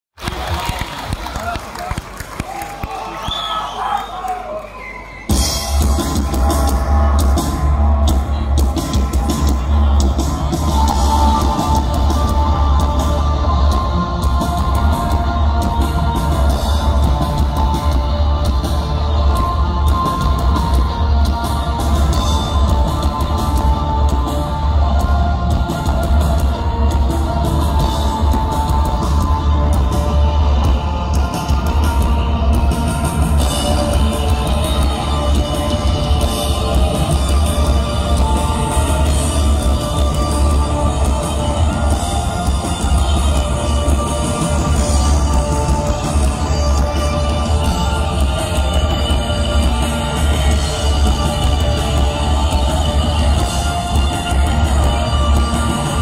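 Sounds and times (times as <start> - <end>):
drums: 0.1 - 56.0
live post-punk band: 4.9 - 56.0
guitar: 5.2 - 56.0.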